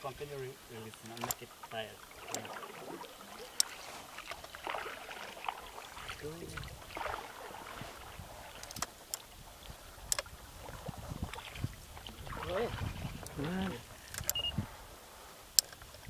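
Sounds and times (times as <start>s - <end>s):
water sloshing against hull: 0.8s - 16.0s
faint clicks: 0.9s - 4.6s, 8.5s - 10.3s, 14.0s - 14.5s, 15.5s - 16.0s.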